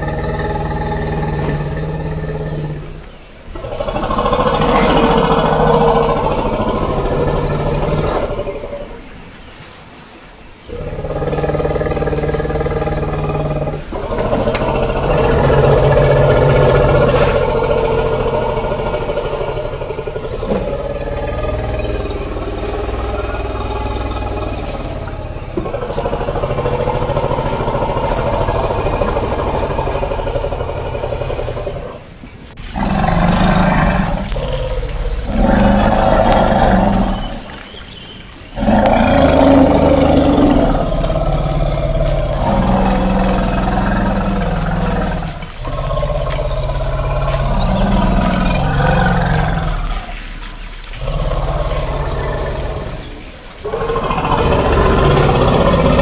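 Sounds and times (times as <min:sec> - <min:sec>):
elephant calls: 0:31.9 - 0:56.0.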